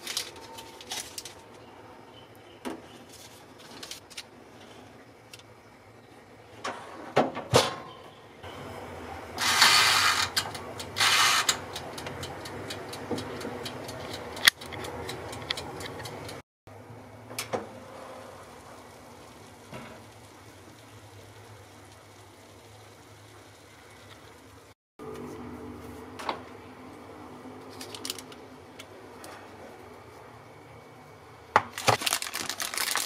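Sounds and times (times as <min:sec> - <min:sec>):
low hum of oven: 0:00.0 - 0:33.0
mechanical timer ticking: 0:10.4 - 0:16.4.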